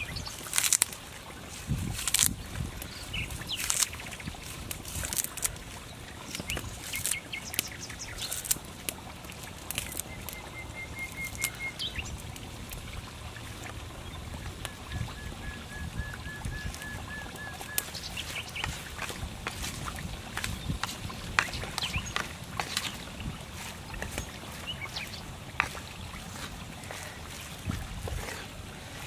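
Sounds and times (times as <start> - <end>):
bird high piping notes: 14.7 - 18.7
hands clicking and tapping in bowl: 17.6 - 23.1, 24.0 - 27.0.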